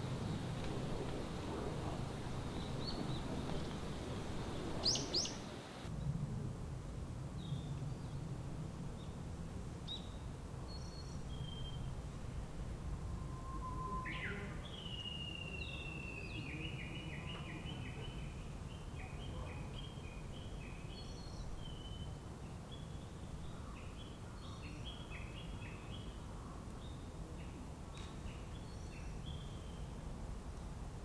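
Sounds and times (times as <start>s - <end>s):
songbird singing: 0.0s - 5.9s, 9.8s - 12.0s, 12.9s - 30.7s
steady low rumble: 0.0s - 9.8s.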